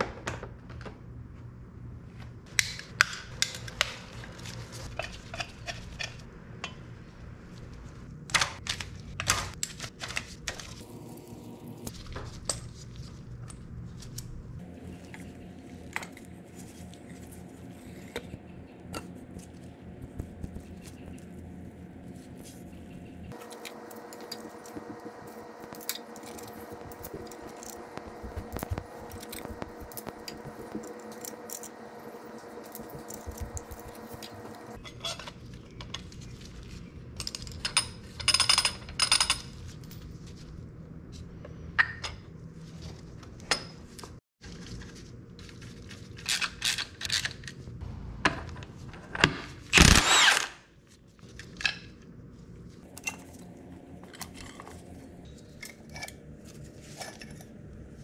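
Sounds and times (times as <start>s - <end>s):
steady hum: 1.2s - 34.8s, 50.8s - 58.0s
power tool running: 23.3s - 34.8s, 49.7s - 50.6s.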